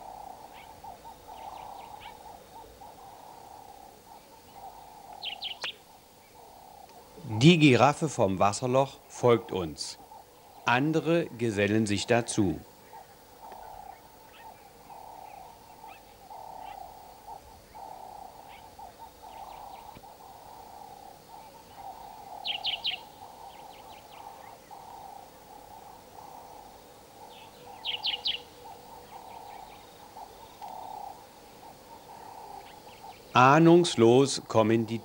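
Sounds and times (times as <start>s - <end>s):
low pulsing bird call: 0.0s - 35.0s
high bird chirps: 22.4s - 23.1s, 27.4s - 28.5s.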